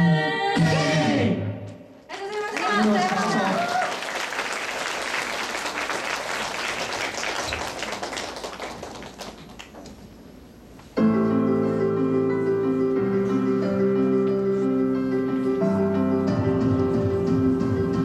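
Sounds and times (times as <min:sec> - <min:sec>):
audience applause: 0:02.1 - 0:10.0.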